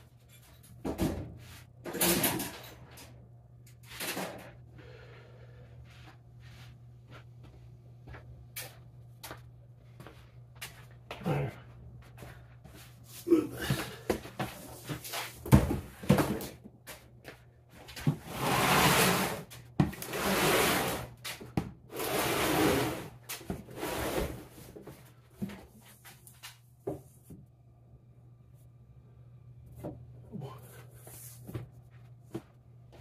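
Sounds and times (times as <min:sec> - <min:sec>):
bins scraping across floor: 0:18.1 - 0:21.2, 0:21.9 - 0:24.7.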